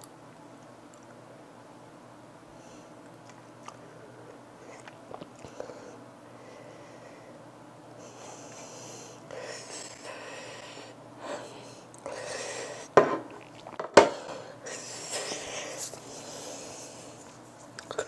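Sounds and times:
woman breathing hard and sniffing: 8.0 - 13.0, 14.0 - 17.4.

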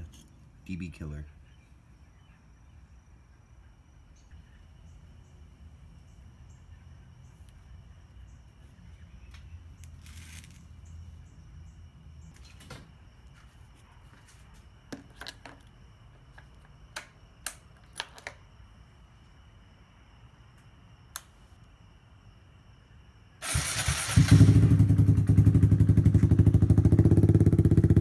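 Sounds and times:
crickets chirping: 0.0 - 28.0
handling rustle: 9.8 - 11.0.

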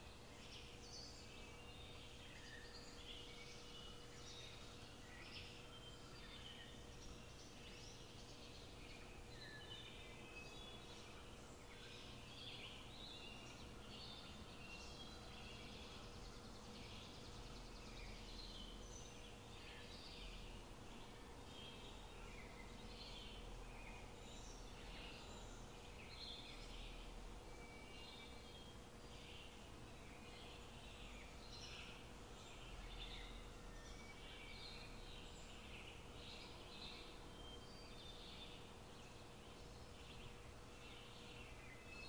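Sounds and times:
small birds chirping: 0.0 - 42.0.

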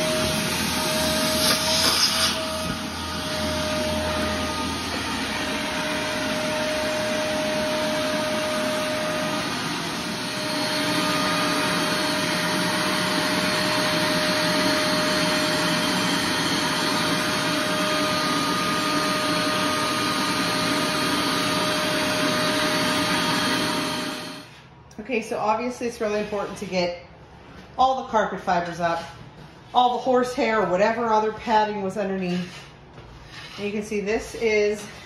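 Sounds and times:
shop vacuum running: 0.0 - 25.2.

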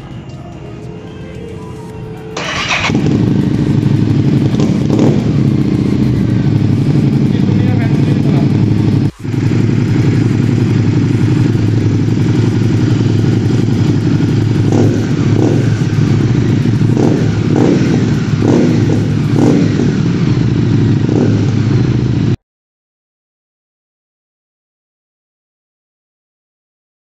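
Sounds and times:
motorcycle engine idling and revving: 1.8 - 22.4.

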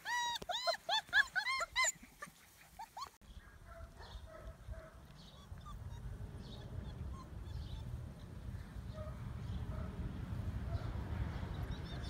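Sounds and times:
puppies whining and yipping: 0.0 - 3.2, 5.2 - 8.4.

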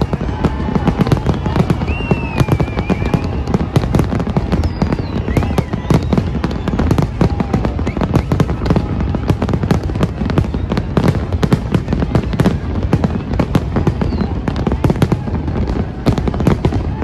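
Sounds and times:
fireworks bangs and crackles: 0.0 - 17.0.

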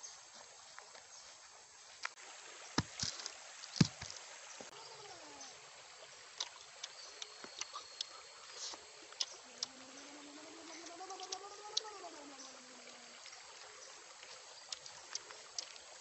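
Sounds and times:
faint steady hiss: 0.0 - 16.0
man chewing food: 6.4 - 9.8, 10.6 - 12.0, 14.2 - 16.0.

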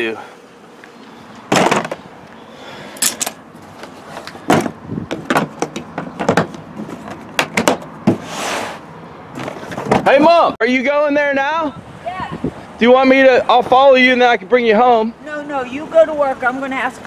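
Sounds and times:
plastic case knocks and thuds: 4.5 - 6.6
short scraping hiss: 8.2 - 8.9.

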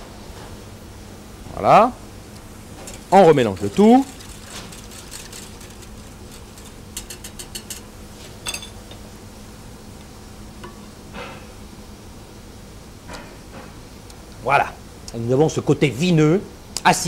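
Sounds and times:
whisk clicking against metal pan: 2.8 - 7.9
whisk stirring sauce in saucepan: 2.8 - 7.9
metal clink: 7.0 - 9.0.

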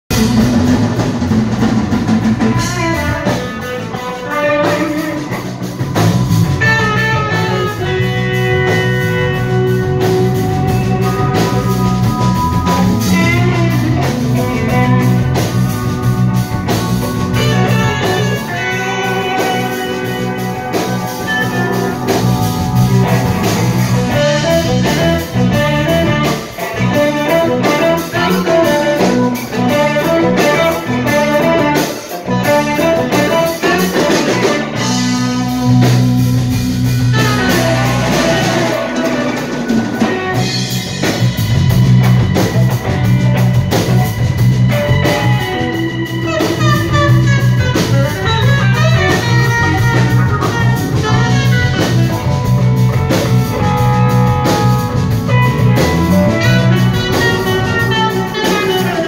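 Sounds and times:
drum kit steady beat: 0.1 - 59.0
guitar-led band music: 0.1 - 59.0.

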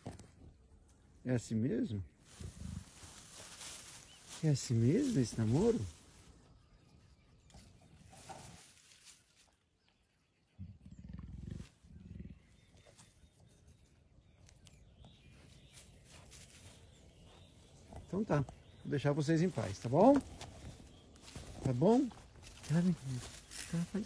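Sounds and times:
jaguar growling: 10.6 - 12.8.

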